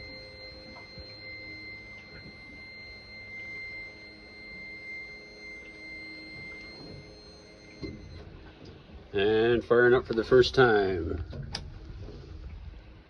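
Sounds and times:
electronic warning buzzer: 0.0s - 8.5s.

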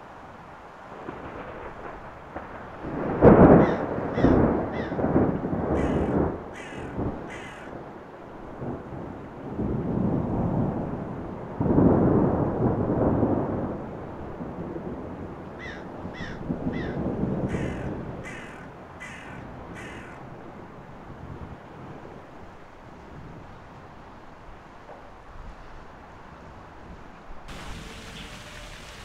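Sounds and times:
bird calling: 3.6s - 5.0s, 5.8s - 7.7s, 15.6s - 20.2s, 27.5s - 29.0s.

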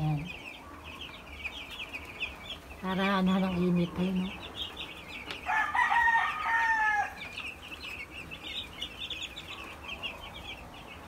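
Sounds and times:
chicks peeping: 0.0s - 11.0s
rooster crowing: 5.4s - 7.3s.

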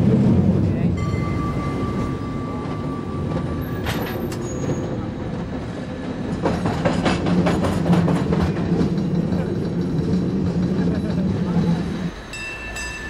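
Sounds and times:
cable car rumbling: 0.0s - 13.0s
clanks and clicks: 1.9s - 10.6s.

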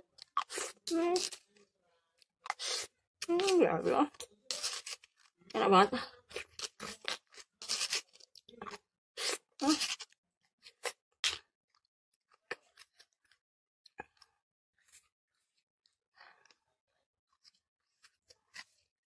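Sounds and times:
plastic spoon scraping stone mortar: 0.2s - 1.5s, 2.5s - 5.2s, 6.4s - 8.3s, 9.2s - 11.4s.

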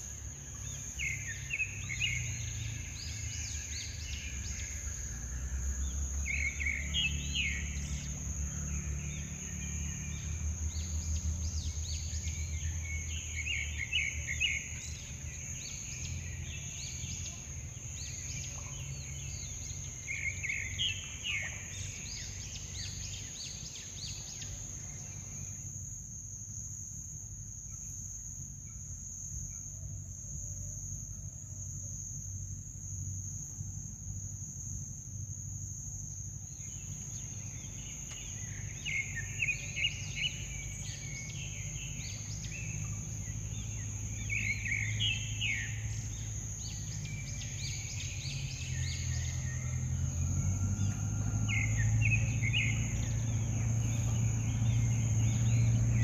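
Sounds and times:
low background rumble: 0.0s - 29.4s, 30.0s - 56.0s
insects droning high-pitched: 0.0s - 56.0s
bird chirping: 36.5s - 56.0s.

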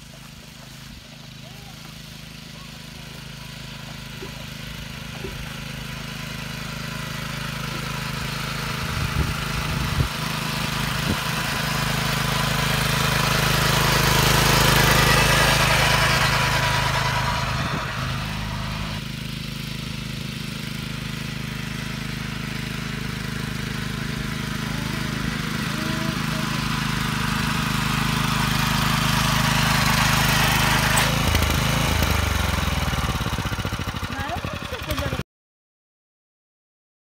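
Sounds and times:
small cultivator engine running: 0.0s - 35.2s.

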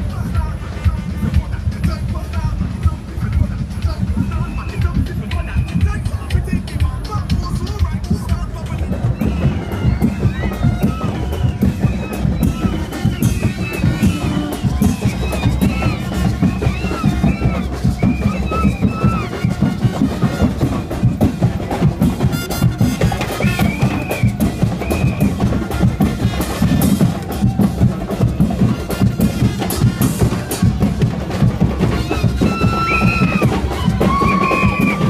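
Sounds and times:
heavy drumming and bass drum: 0.0s - 35.0s.

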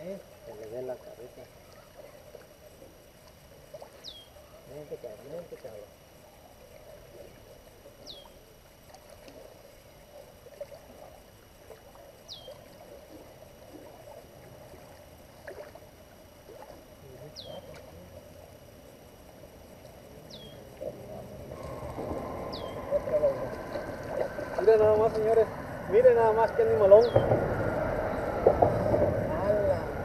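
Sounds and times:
river water lapping: 0.0s - 30.0s
fish splashing: 1.3s - 4.7s, 5.4s - 30.0s
bird whistle sliding downward: 21.5s - 23.2s.

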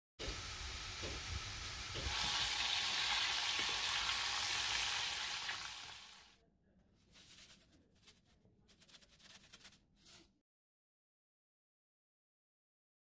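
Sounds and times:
chicken deep-frying in oil: 0.2s - 6.4s.

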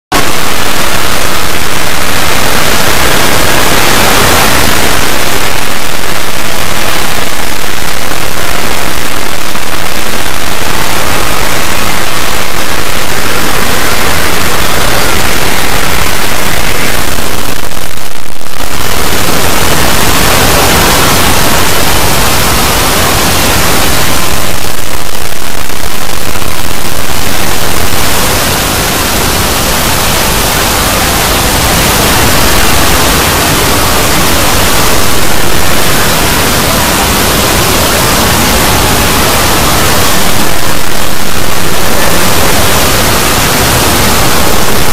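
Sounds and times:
distorted wall of noise: 0.0s - 44.9s.

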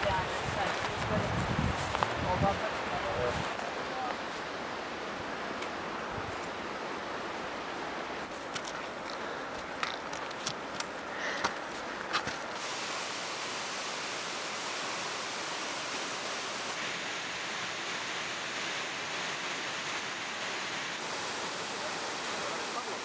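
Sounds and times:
footsteps: 0.0s - 4.5s, 8.2s - 12.6s
stream rushing over boulders: 0.0s - 23.0s
trekking pole clicks: 8.5s - 12.4s.

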